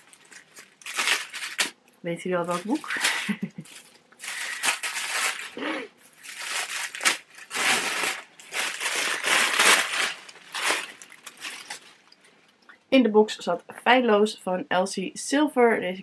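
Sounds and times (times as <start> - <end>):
wrapping rustling and crinkling: 0.0 - 12.5.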